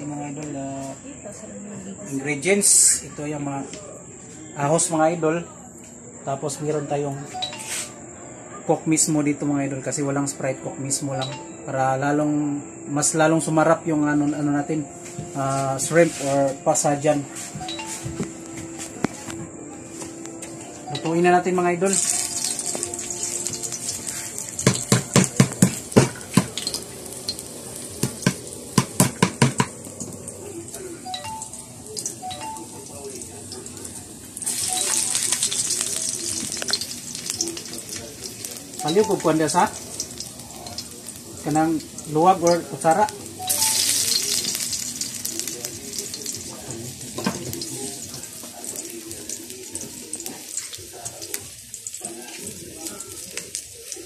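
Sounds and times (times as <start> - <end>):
oil hissing in a wok: 21.9 - 32.2, 33.1 - 54.0.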